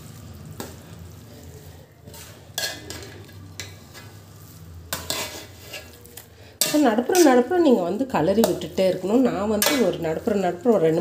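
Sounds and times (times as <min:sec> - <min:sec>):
rice bubbling in a pot: 0:00.0 - 0:11.0
spoon scraping a pot: 0:01.5 - 0:04.2, 0:04.9 - 0:07.6, 0:08.3 - 0:10.4.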